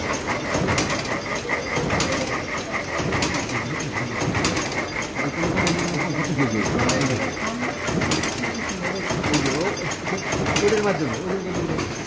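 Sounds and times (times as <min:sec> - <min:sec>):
sharp loom knock: 0:00.0 - 0:12.0
weaving loom clattering: 0:00.0 - 0:12.0.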